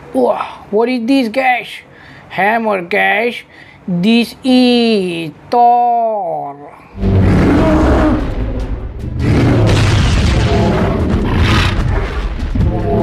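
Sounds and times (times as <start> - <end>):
booming impact effects: 6.9 - 13.0
action music: 7.0 - 13.0.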